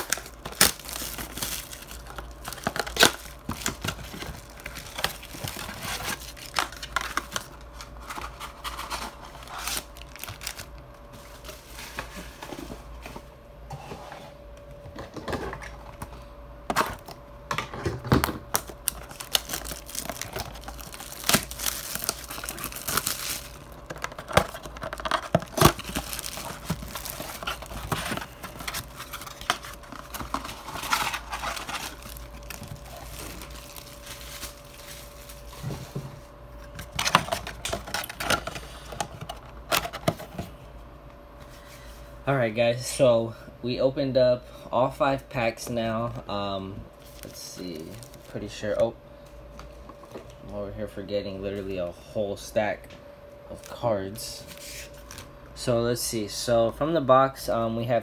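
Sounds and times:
cardboard boxes tearing: 0.0s - 7.5s, 18.9s - 34.8s
foil packs crinkling: 0.0s - 11.5s, 18.4s - 35.8s, 36.7s - 40.5s, 47.0s - 48.8s.

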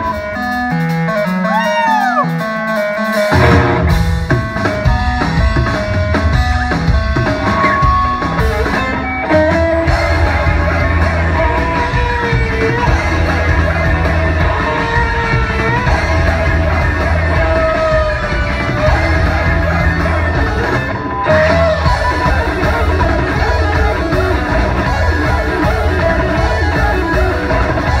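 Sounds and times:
drum kit: 0.0s - 28.0s
guitar: 0.0s - 28.0s
bass line: 3.3s - 28.0s.

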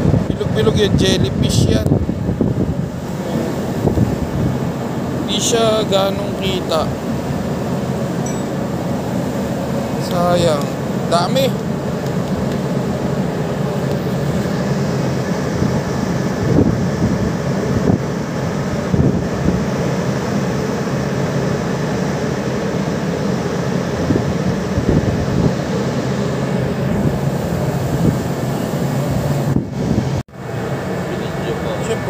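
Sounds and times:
wind on microphone: 0.0s - 9.2s, 13.5s - 20.2s, 23.7s - 30.2s
ship machinery droning hum: 0.0s - 32.0s.

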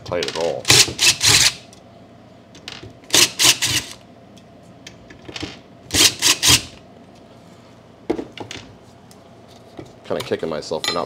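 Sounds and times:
cordless driver whirring: 0.7s - 1.6s, 3.1s - 4.0s.

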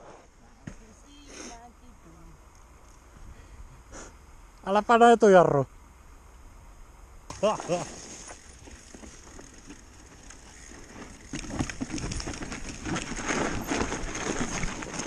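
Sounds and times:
bike rattling over bumps: 7.3s - 15.0s
bike tyre noise on snow: 7.3s - 15.0s.

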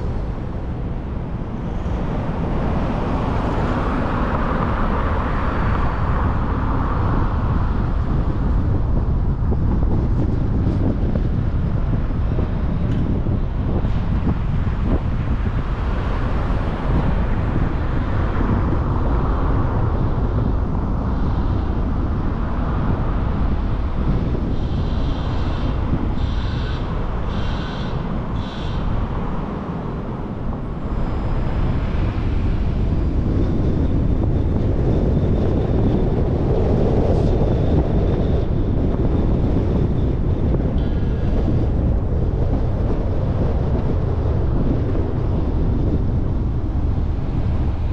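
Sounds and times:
car road and wind noise: 0.0s - 47.9s.

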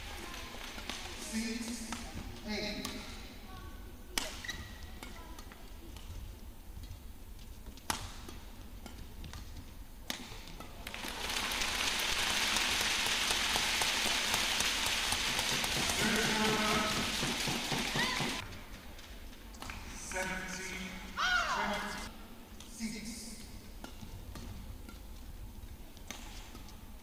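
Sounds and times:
rackets hitting shuttlecock: 0.7s - 3.2s, 4.1s - 6.2s, 7.6s - 11.0s, 14.8s - 18.4s, 23.8s - 27.0s
crowd applause: 10.9s - 18.4s.

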